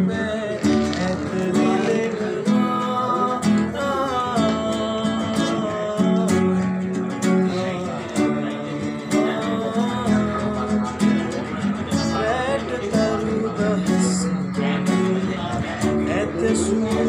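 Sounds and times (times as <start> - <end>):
acoustic guitar strumming: 0.0 - 17.0
man singing: 0.0 - 17.0.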